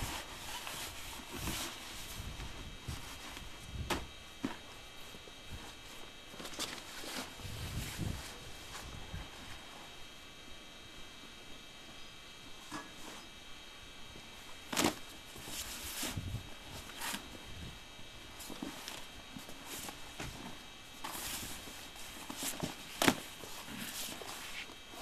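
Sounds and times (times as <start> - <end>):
tent fabric rustling: 0.0 - 10.0.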